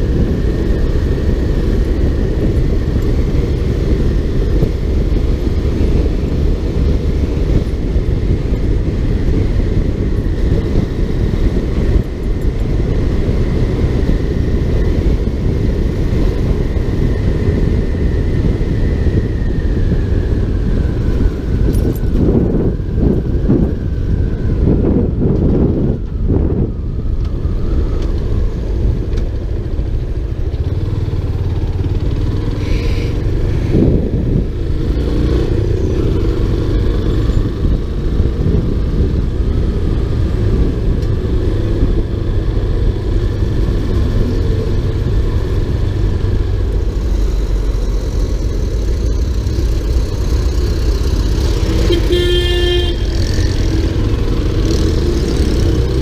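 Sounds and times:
motorcycle engine rumble: 0.0s - 56.0s
vehicle horn honking: 51.8s - 53.3s.

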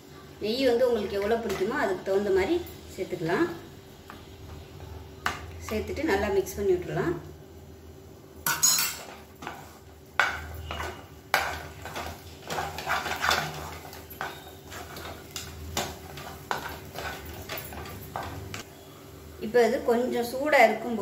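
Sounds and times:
wooden spatula scraping pan: 9.0s - 18.6s
spatula knocking against pan: 10.2s - 12.1s.

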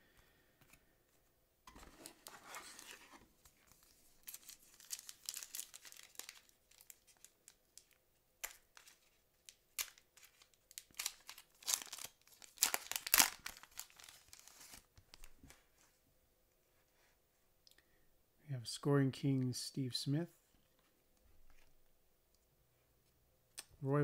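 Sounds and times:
foil wrapper crinkling and tearing: 3.7s - 15.2s.

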